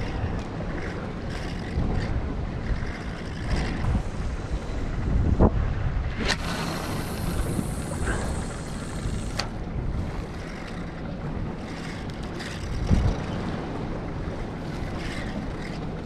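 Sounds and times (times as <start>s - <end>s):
water lapping around boat: 0.0s - 16.0s
wind buffeting microphone: 0.0s - 16.0s.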